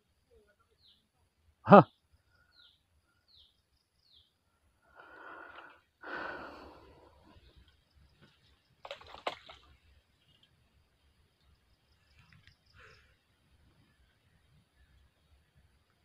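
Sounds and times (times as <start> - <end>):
person breathing out heavily: 4.9 - 7.3.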